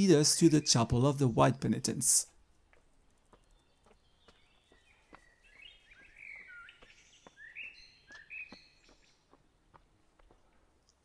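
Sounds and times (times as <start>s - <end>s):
faint bird calls: 3.3s - 10.7s.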